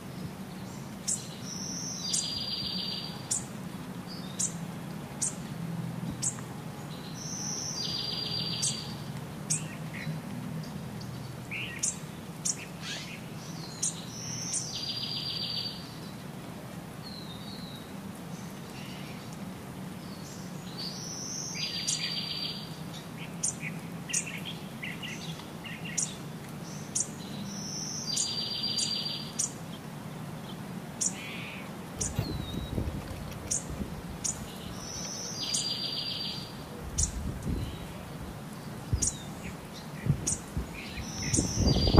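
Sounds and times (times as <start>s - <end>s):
songbirds singing and chirping: 0.0s - 41.9s.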